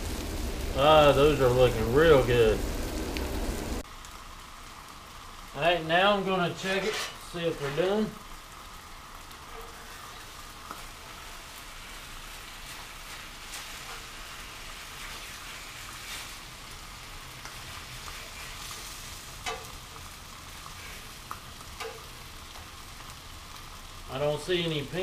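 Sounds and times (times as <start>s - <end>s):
meat sizzling on a griddle: 0.0s - 25.0s
metal utensil clicking on griddle: 19.4s - 19.7s, 21.8s - 22.6s.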